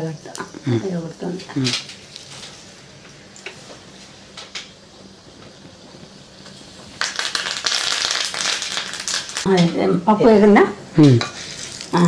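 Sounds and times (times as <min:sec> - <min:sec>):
spices sizzling in hot oil: 0:00.0 - 0:09.5, 0:11.1 - 0:12.0
loud sizzling and crackling: 0:04.4 - 0:09.7, 0:11.0 - 0:12.0.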